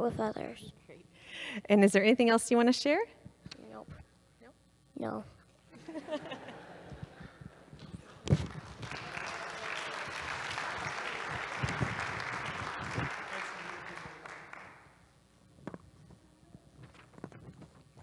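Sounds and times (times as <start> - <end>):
congregation applauding: 7.2 - 15.0.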